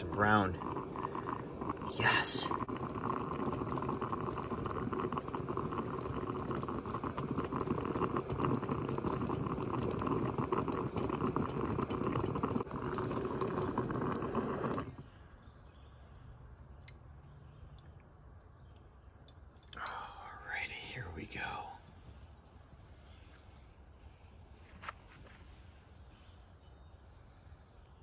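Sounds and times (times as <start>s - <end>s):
stove burner hissing: 0.0s - 15.1s
coffee percolator bubbling: 0.0s - 15.2s.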